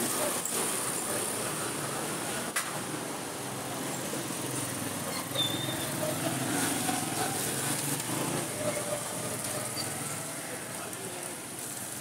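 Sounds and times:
passing traffic: 0:00.0 - 0:12.0
high squeak: 0:05.1 - 0:06.0.

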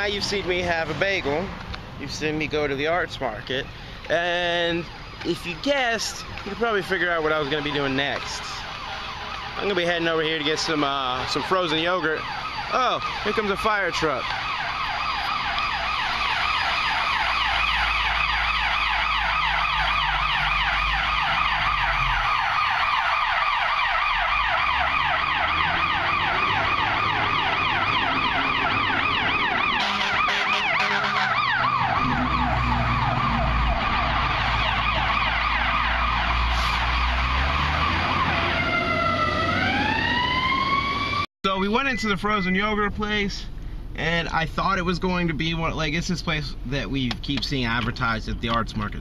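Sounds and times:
truck engine rumbling: 0:00.0 - 0:49.0
fire truck siren yelping: 0:03.9 - 0:42.7.

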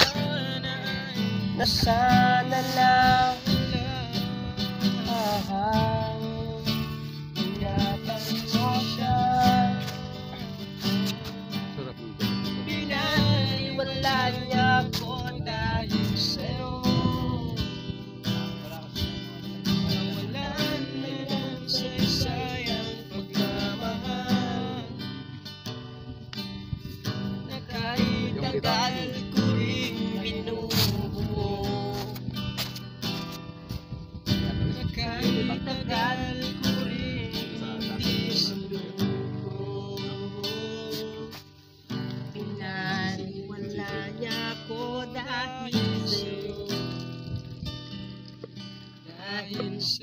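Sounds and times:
person singing: 0:00.0 - 0:06.8, 0:27.5 - 0:32.2, 0:42.2 - 0:47.3
acoustic guitar strumming: 0:00.0 - 0:50.0.

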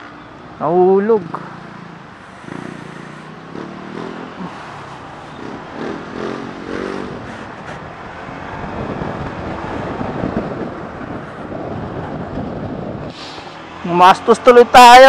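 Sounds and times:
road noise: 0:00.0 - 0:15.0
wind noise: 0:05.3 - 0:13.5.

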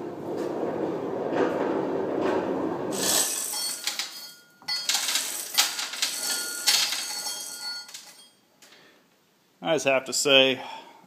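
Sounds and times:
hoist chain rattling: 0:03.0 - 0:08.3.

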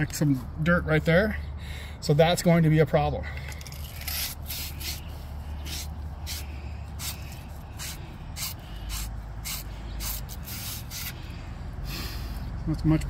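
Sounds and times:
wire brush scrubbing copper pipe: 0:03.7 - 0:11.2.

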